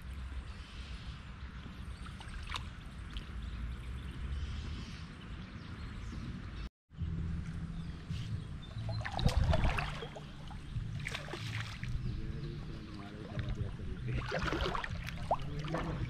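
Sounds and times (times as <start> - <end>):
low rumble: 6.9 - 16.0
running water: 8.8 - 16.0.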